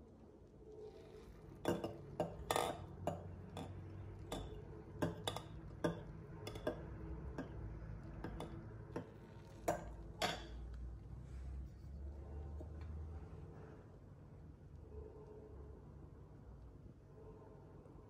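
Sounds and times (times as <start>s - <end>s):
spoon clinking in glass mug: 1.6s - 7.6s, 8.2s - 10.6s.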